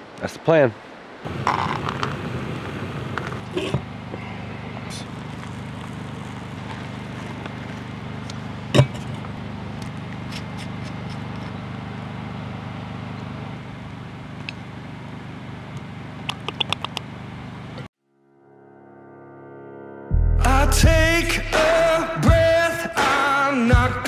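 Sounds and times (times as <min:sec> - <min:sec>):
stove burner running: 0:01.3 - 0:17.9.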